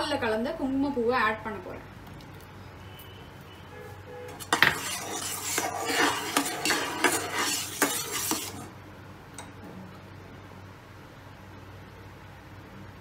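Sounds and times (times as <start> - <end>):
metal spatula scraping pot: 4.3 - 8.8.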